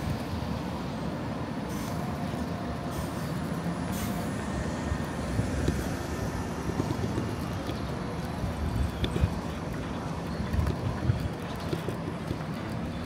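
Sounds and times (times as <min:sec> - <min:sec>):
road traffic rumble: 0:00.0 - 0:13.0
brief hisses: 0:03.9 - 0:04.3.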